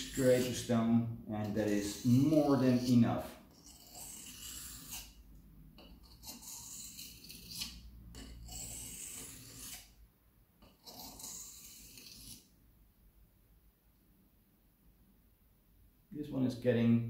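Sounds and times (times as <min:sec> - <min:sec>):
knife scraping on whetstone: 0:00.0 - 0:00.8, 0:01.4 - 0:05.2, 0:05.8 - 0:10.0, 0:10.6 - 0:12.5.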